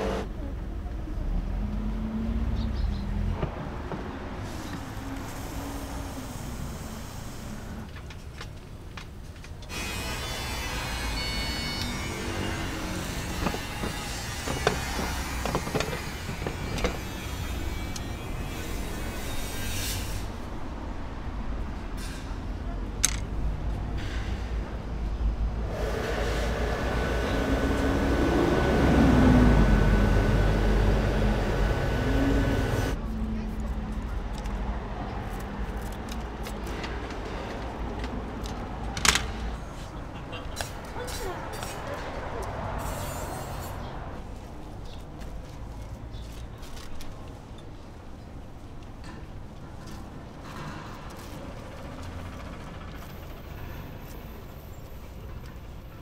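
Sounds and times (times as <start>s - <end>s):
sharp clicks and metal knocks: 23.0s - 23.3s.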